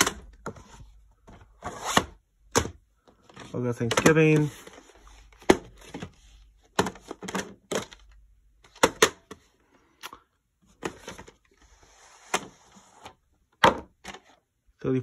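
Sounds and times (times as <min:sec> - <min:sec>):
plastic cassette case clacking: 0:06.7 - 0:09.4.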